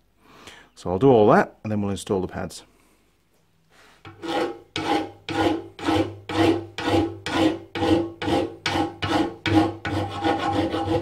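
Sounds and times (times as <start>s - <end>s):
hand file rasping on steel: 4.0s - 11.0s.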